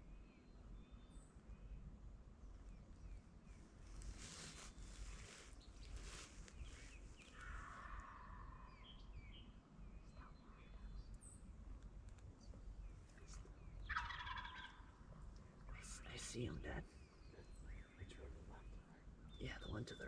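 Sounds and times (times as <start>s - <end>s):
songbirds chirping: 0.0s - 20.0s
turkey gobbling: 13.9s - 14.9s.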